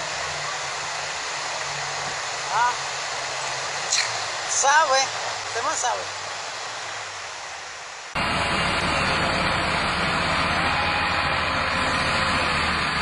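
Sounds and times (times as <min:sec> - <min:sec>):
rushing river water: 0:00.0 - 0:13.0
engine idling: 0:08.2 - 0:13.0.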